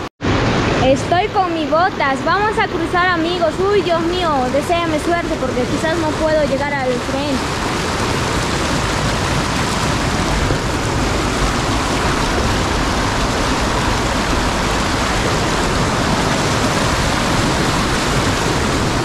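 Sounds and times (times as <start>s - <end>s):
river rushing: 0.0s - 19.0s.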